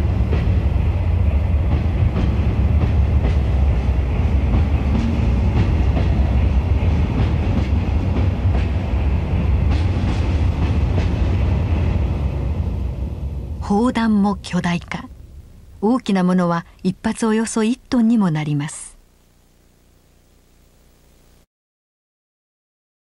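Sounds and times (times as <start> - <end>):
railway wagon rumbling: 0.0 - 15.8.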